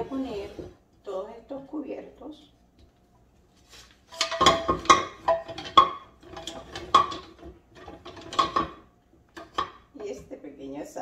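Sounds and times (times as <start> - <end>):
wooden utensils clattering: 4.0 - 10.3.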